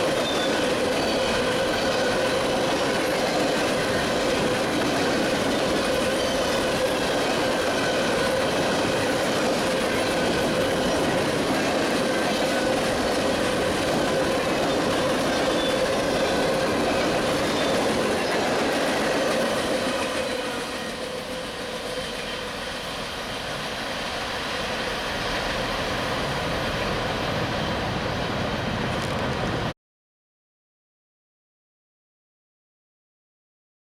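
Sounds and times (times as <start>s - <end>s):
freight train wheels clicking on rails: 0.0s - 29.7s.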